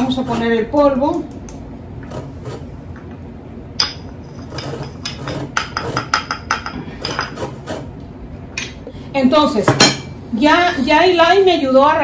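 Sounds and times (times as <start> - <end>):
stone pestle knocking in mortar: 3.8 - 7.5.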